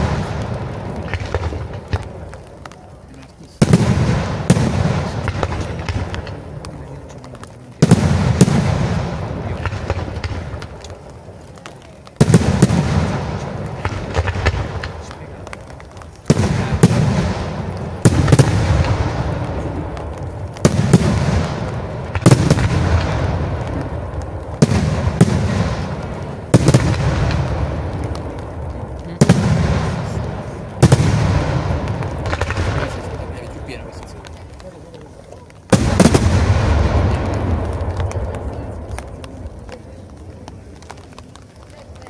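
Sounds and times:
faint crackling: 0.0s - 42.0s
firework shells bursting: 7.8s - 39.8s.

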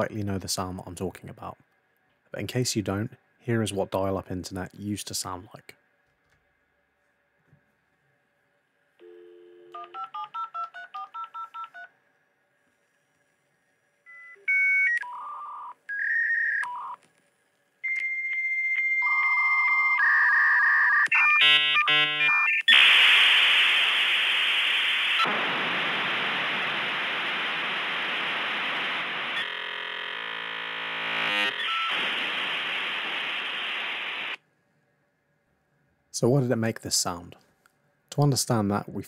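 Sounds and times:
dial-up modem tones: 9.0s - 11.9s, 14.1s - 17.0s, 31.2s - 34.4s
hissing static: 22.6s - 34.4s
harsh buzzing: 22.8s - 34.4s.

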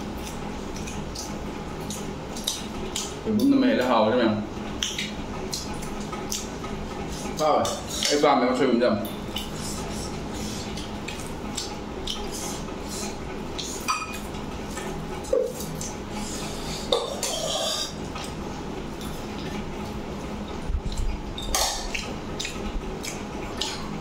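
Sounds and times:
chewing: 0.0s - 3.9s, 4.7s - 8.2s, 9.0s - 24.0s
fingers mixing food on metal plate: 0.0s - 24.0s.

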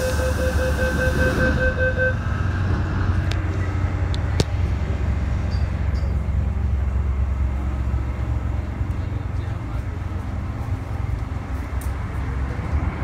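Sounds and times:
two-tone door warning beeps: 0.0s - 2.2s
train equipment low rumble: 0.0s - 13.0s.

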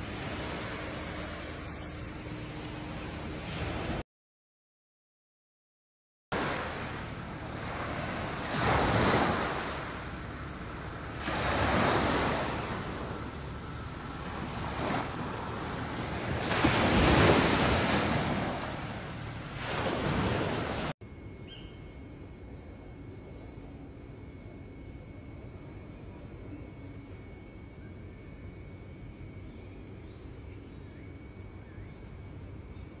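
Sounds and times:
sea waves washing onto shore: 6.4s - 20.9s.

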